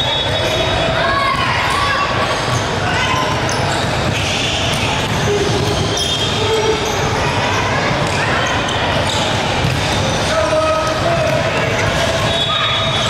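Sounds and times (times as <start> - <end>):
basketball bouncing on court: 8.9 - 13.0.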